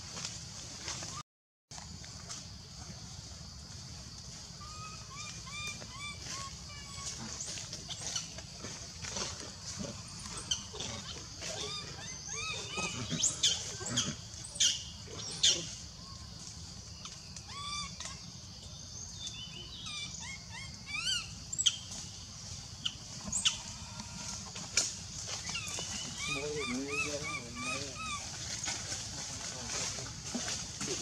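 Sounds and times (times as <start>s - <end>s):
baby monkey squealing cries: 11.5s - 14.8s, 17.5s - 18.2s, 19.8s - 21.3s, 25.5s - 28.3s.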